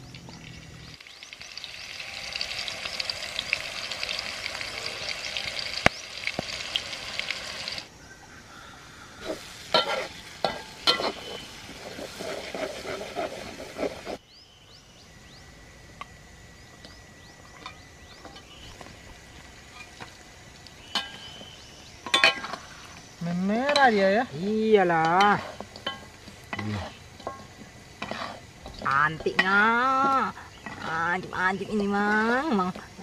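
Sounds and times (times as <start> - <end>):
paste sizzling in hot oil: 0.8 - 7.9, 9.2 - 14.2, 18.4 - 31.0
metal spatula scraping wok: 9.2 - 14.2, 24.9 - 29.5, 30.6 - 31.3
birds chirping: 11.0 - 11.6, 16.5 - 18.9, 20.7 - 25.2, 28.6 - 33.0.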